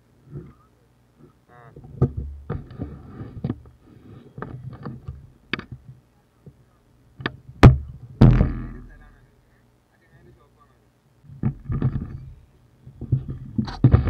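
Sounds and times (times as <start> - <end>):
camera handling knocks and bumps: 11.3 - 12.2.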